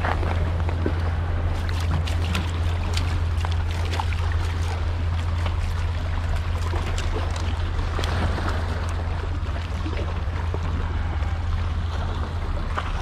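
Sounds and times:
low rumble: 0:00.0 - 0:13.0
water washing over rocks: 0:00.0 - 0:13.0
small clicks and drips: 0:01.6 - 0:11.4.

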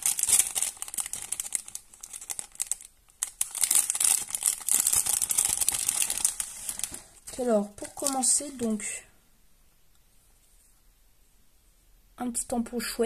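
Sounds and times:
plastic sheets crinkling: 0:00.0 - 0:09.0.

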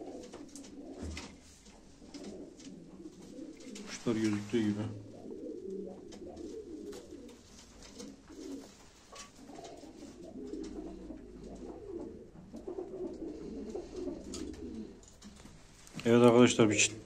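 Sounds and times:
pigeons cooing: 0:00.0 - 0:15.8.

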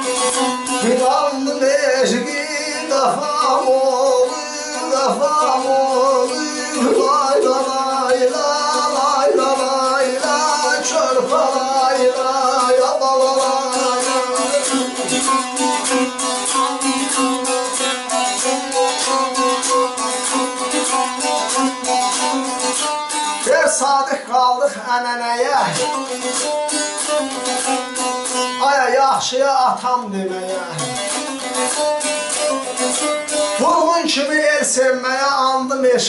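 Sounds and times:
man singing: 0:00.0 - 0:16.1, 0:23.2 - 0:26.5, 0:28.4 - 0:32.1, 0:32.7 - 0:36.0
strummed lute with drone: 0:00.0 - 0:36.0.

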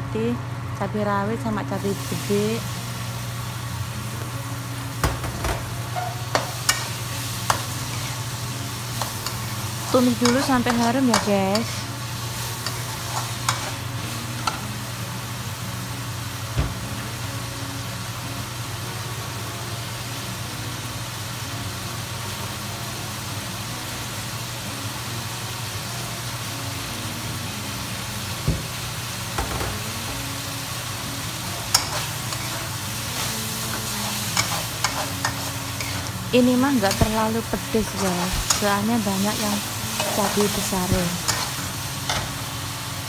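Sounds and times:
food sizzling in oil: 0:01.3 - 0:43.0
metal spatula scraping wok: 0:09.0 - 0:11.9, 0:31.6 - 0:36.2, 0:39.4 - 0:42.3.

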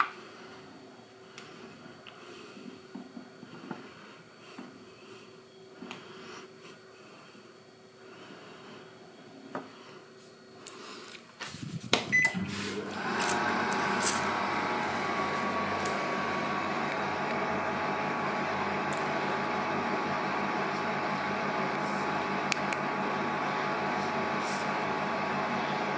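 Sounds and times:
kitchen appliance humming: 0:10.7 - 0:25.9.

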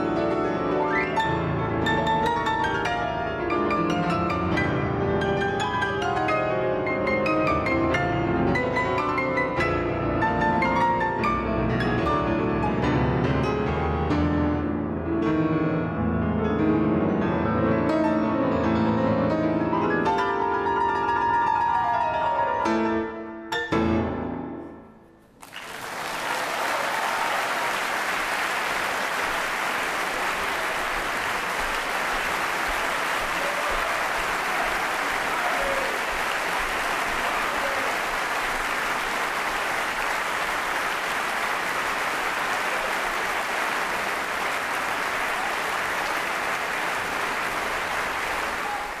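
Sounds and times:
audience applauding: 0:25.4 - 0:49.0.

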